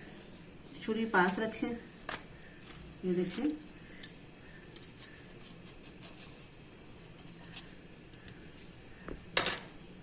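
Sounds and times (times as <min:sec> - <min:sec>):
knife scratching pastry sheets: 0:02.5 - 0:07.8.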